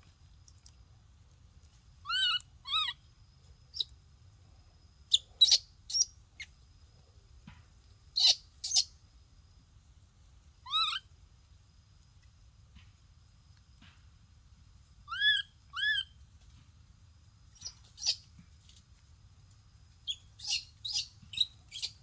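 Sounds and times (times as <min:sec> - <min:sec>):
baby monkey crying: 0:02.0 - 0:03.0, 0:08.2 - 0:08.8, 0:10.6 - 0:11.1, 0:15.1 - 0:16.1
sharp squeaks: 0:05.1 - 0:06.1, 0:08.2 - 0:08.9, 0:17.6 - 0:18.2, 0:20.1 - 0:22.0.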